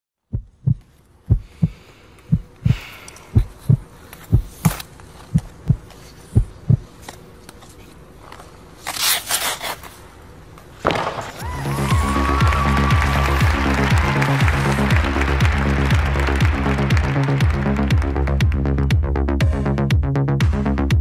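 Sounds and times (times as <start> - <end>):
heartbeat thumps: 0.2 - 7.0.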